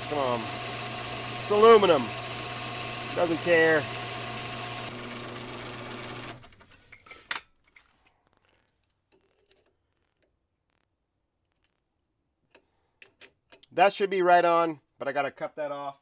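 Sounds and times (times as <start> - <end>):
lathe running with mechanical drone: 0.0 - 6.4.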